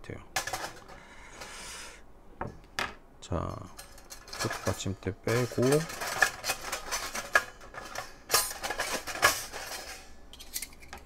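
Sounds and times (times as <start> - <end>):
metal parts clinking and scraping: 0.4 - 1.0, 3.6 - 11.0.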